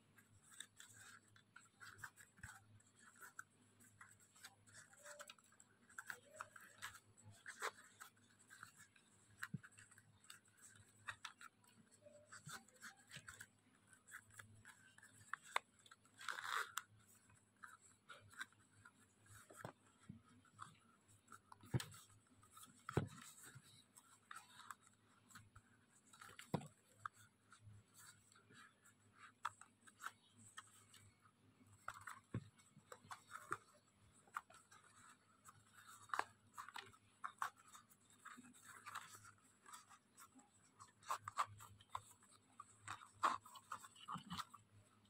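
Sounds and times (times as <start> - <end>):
rustling and scraping of leaf strips: 0.0 - 45.0.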